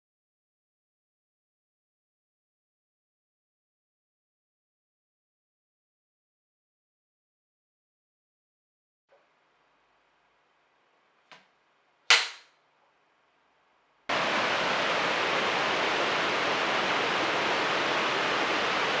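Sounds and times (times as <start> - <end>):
clapperboard snap: 12.1 - 12.5
waterfall rushing: 14.1 - 19.0.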